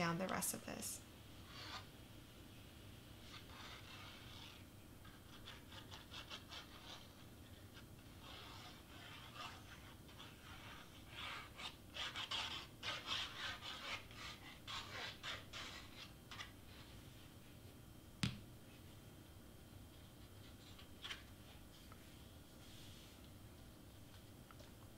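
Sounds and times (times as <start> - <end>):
glue bottle tip scratching on cardstock: 1.4 - 1.9, 3.3 - 16.5.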